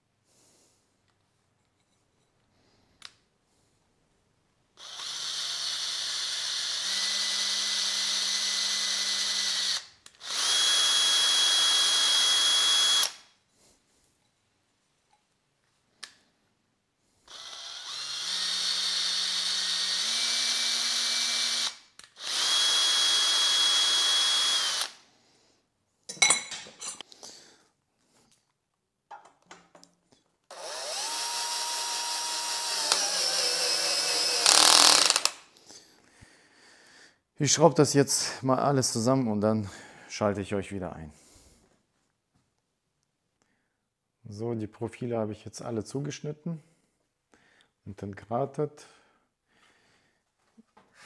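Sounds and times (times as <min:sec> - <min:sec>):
electric drill drilling aluminium: 0:04.8 - 0:13.2, 0:17.3 - 0:25.0, 0:30.5 - 0:35.4.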